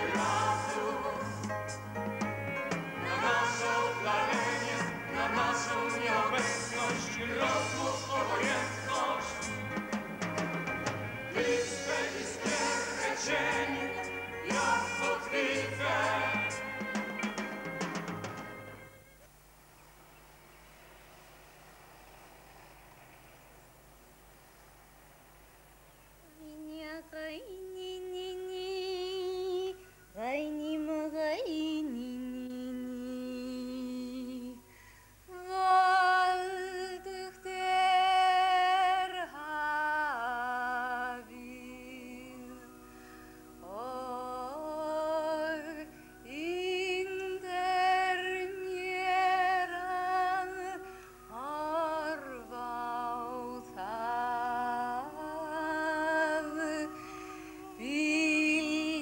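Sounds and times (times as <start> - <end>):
woman singing wordlessly: 0.0 - 1.5, 26.2 - 34.7, 35.3 - 42.8, 43.6 - 59.0.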